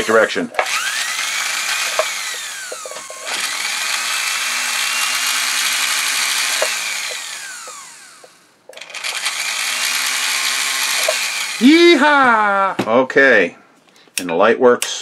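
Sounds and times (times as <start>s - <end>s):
sewing machine motor whine: 0.6s - 12.1s.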